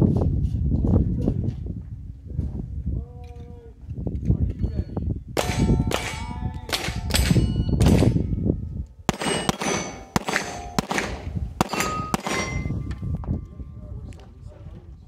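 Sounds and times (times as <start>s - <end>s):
pistol shots: 5.4s - 8.2s, 9.1s - 12.9s
steel target plate ringing: 5.4s - 8.5s, 9.1s - 13.5s.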